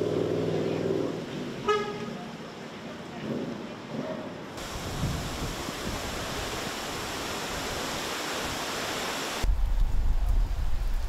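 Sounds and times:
wind and rain hissing: 0:01.2 - 0:11.0
wind buffeting microphone: 0:04.6 - 0:08.1, 0:09.4 - 0:11.0.

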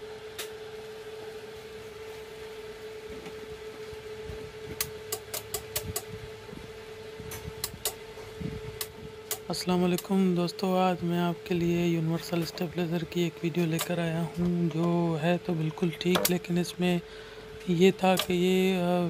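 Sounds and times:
voltage stabilizer humming: 0:00.0 - 0:19.0
sharp relay clicks: 0:04.8 - 0:06.2, 0:07.3 - 0:08.0, 0:08.8 - 0:10.2, 0:13.7 - 0:15.0, 0:16.0 - 0:16.6, 0:17.6 - 0:18.6.

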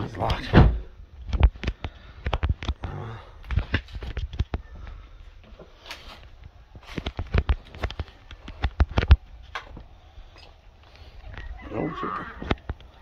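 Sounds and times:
footsteps crunching over debris: 0:03.4 - 0:11.6.

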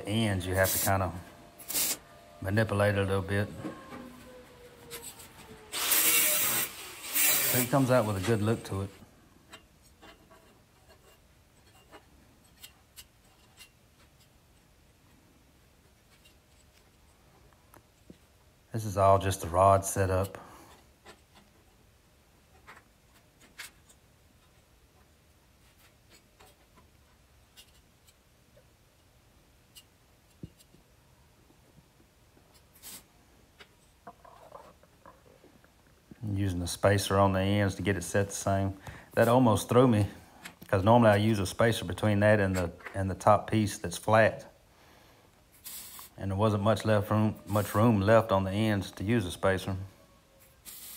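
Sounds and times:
short hiss: 0:01.6 - 0:02.2, 0:45.5 - 0:46.2, 0:50.6 - 0:50.9.

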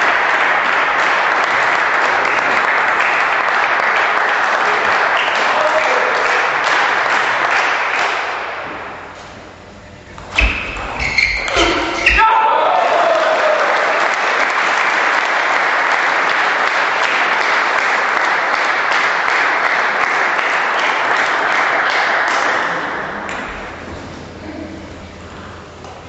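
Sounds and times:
audience applauding: 0:00.0 - 0:09.0, 0:12.4 - 0:23.8.

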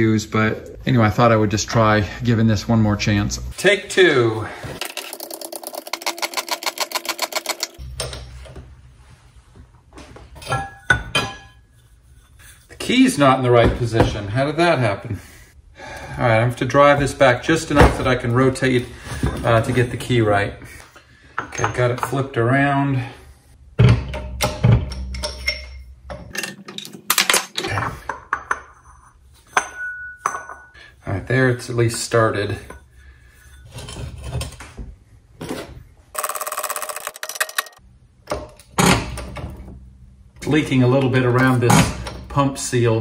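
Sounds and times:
metal clinks and knocks: 0:04.8 - 0:08.8, 0:23.8 - 0:27.5.

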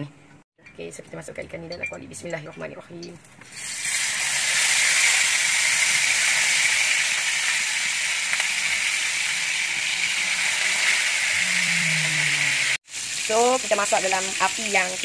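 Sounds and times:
fish sizzling in hot oil: 0:03.4 - 0:11.5, 0:12.6 - 0:15.0.

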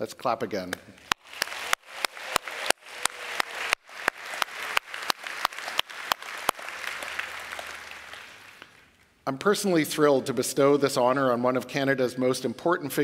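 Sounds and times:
audience applauding: 0:01.0 - 0:09.0.

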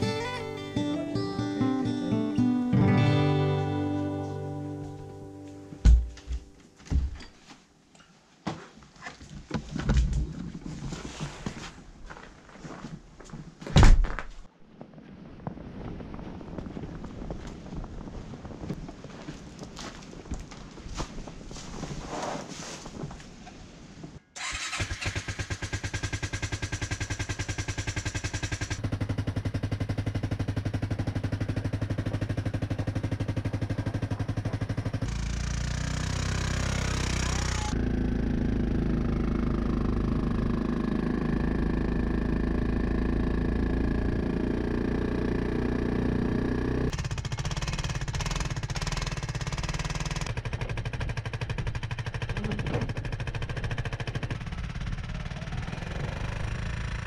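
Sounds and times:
atv engine running: 0:24.4 - 0:57.0.

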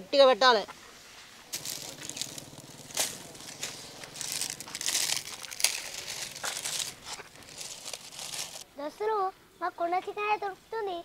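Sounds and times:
dry leaves and twigs crackling: 0:01.5 - 0:08.6.

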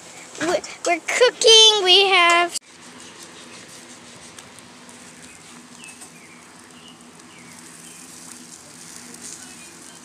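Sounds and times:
chicken sizzling on grill: 0:02.6 - 0:10.0.

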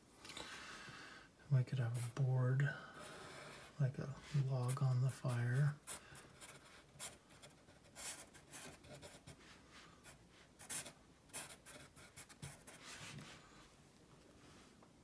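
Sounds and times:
marker scratching on paper: 0:04.6 - 0:09.4, 0:10.6 - 0:13.3.

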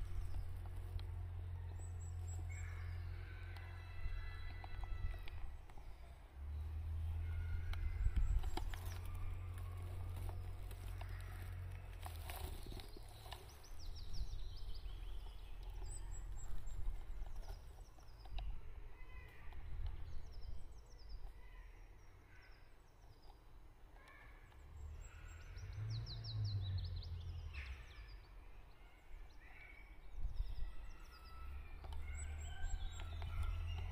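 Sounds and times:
low steady rumble: 0:00.0 - 0:22.2
songbirds singing: 0:00.0 - 0:33.9.

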